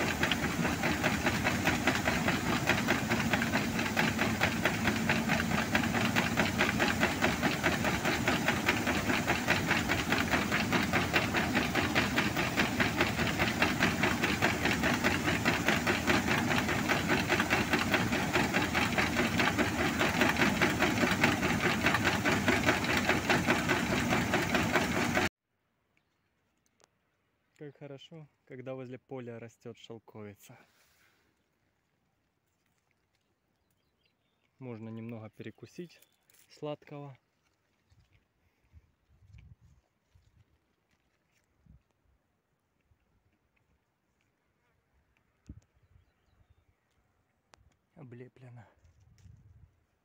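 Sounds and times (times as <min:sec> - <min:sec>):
combine harvester running: 0:00.0 - 0:25.3
grain pouring from auger: 0:00.0 - 0:25.3.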